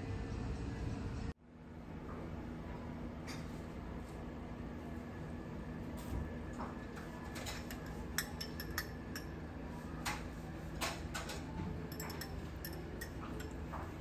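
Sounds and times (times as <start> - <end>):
low room hum: 0.0 - 14.0
dishes and cutlery clinking: 7.2 - 9.4, 10.8 - 14.0.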